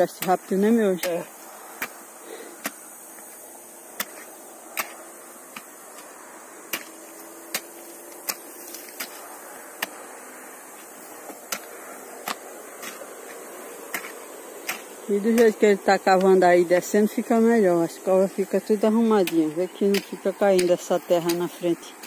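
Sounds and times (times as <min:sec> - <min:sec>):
hoe chopping into hard soil: 0:00.0 - 0:02.9, 0:03.9 - 0:10.1, 0:10.7 - 0:17.0.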